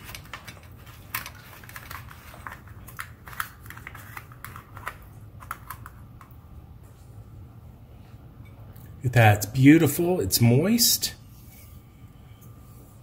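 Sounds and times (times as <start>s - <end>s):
pie crust crackling: 0.0s - 6.0s.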